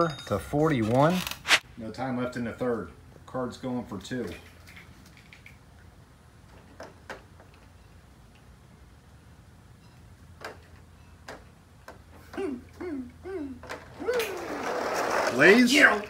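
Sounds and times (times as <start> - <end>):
person calling out: 12.3 - 14.4
toy trucks clicking on plastic track: 14.0 - 16.0.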